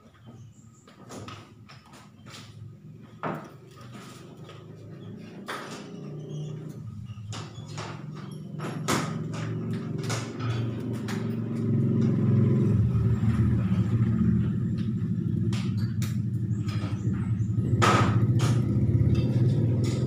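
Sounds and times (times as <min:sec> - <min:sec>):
low engine-like rumble: 0:08.6 - 0:20.0
sharp taps and clicks: 0:14.8 - 0:17.2.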